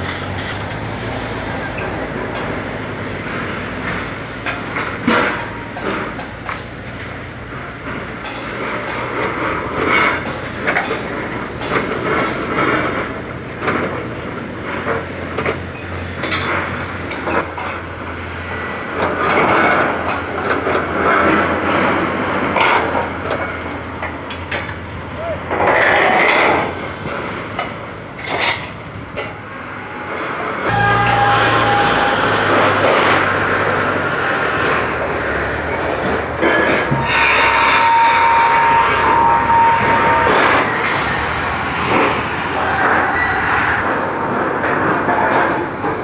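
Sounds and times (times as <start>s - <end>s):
heavy machinery humming: 0.0s - 46.0s
metallic clanks and knocks: 1.8s - 18.4s, 19.0s - 29.4s.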